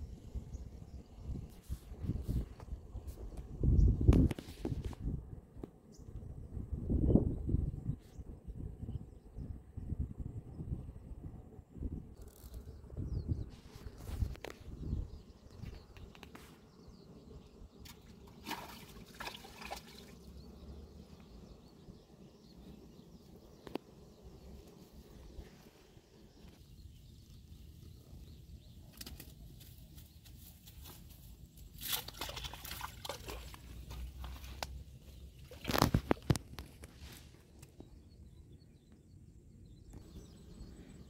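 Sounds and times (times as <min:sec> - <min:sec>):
wind rumbling on microphone: 0:00.0 - 0:18.2, 0:32.2 - 0:38.6
rustles and clicks: 0:35.4 - 0:37.9.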